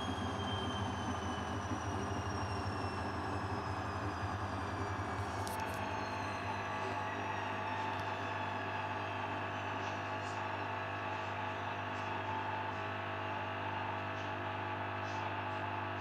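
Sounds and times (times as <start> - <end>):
washing machine spinning: 0.0 - 9.7.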